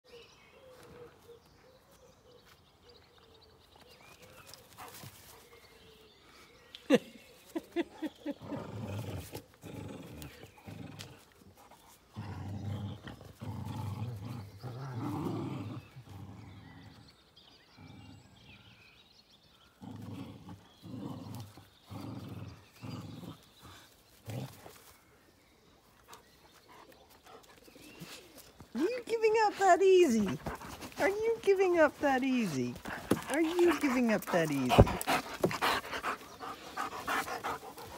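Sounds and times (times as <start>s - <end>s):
dogs growling in play: 7.5s - 37.9s.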